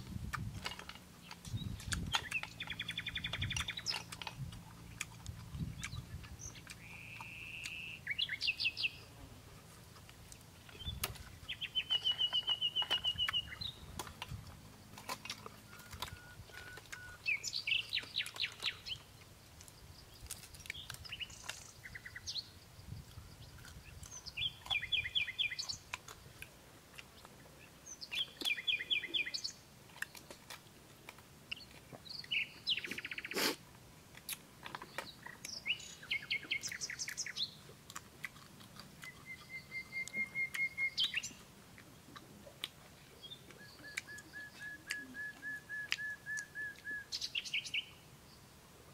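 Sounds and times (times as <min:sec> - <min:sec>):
birds chirping trills: 0:00.6 - 0:09.1, 0:10.6 - 0:26.4, 0:27.1 - 0:30.3, 0:31.6 - 0:33.4, 0:34.7 - 0:37.7, 0:39.0 - 0:41.5.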